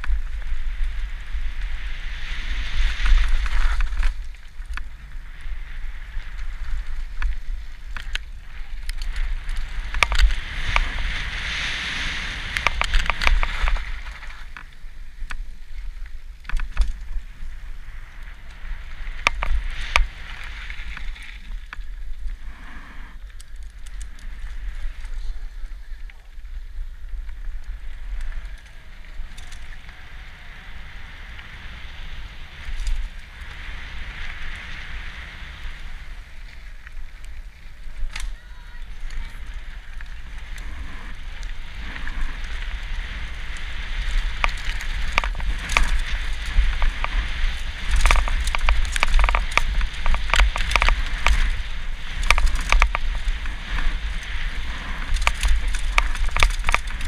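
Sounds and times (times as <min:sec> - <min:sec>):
bike clicking and rattling: 0:00.0 - 0:22.4, 0:23.2 - 0:57.0
wind rumble on microphone: 0:00.0 - 0:57.0
tyres crunching over gravel: 0:44.1 - 0:57.0.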